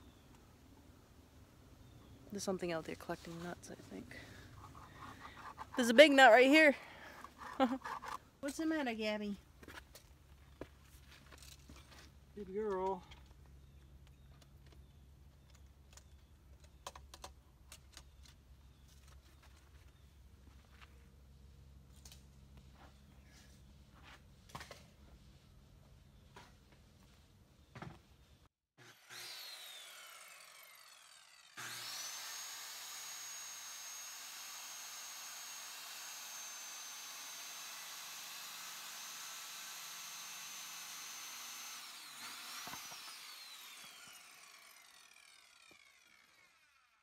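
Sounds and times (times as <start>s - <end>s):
circular saw whining: 28.8s - 47.0s.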